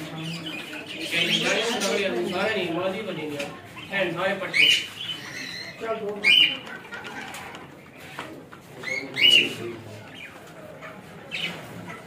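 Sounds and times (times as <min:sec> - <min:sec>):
birds chirping: 0:00.0 - 0:12.0
budgerigars and doves calling: 0:00.2 - 0:02.6, 0:04.4 - 0:06.6, 0:08.8 - 0:10.4, 0:11.3 - 0:11.8.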